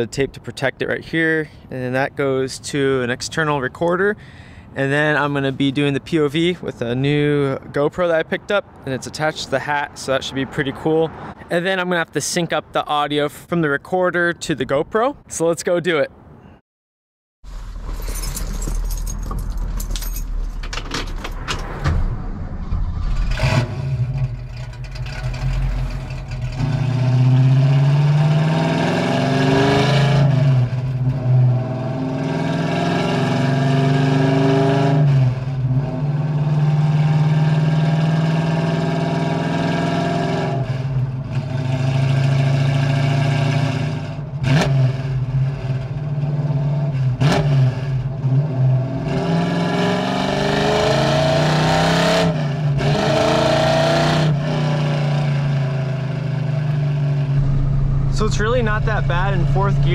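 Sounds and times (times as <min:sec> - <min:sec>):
car engine accelerating through gears: 0:21.5 - 0:59.9.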